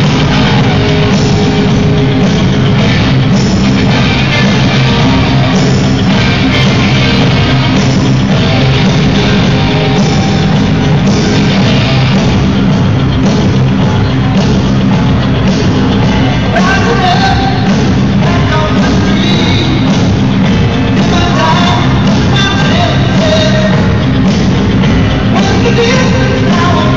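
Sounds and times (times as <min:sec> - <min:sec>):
rock song over loudspeakers: 0:00.0 - 0:26.9.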